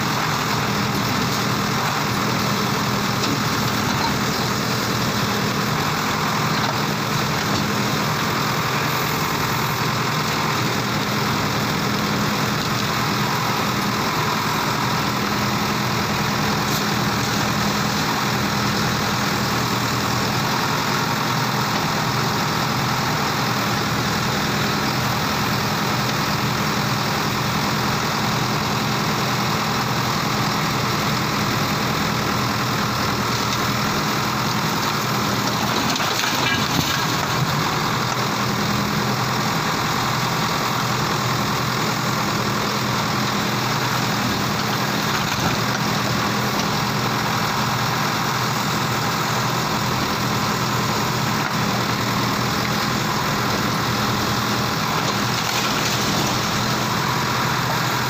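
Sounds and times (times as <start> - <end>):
diesel engine running: 0.0 - 58.0
brick wall collapsing clatter: 34.6 - 38.2, 44.1 - 46.8, 54.4 - 57.0.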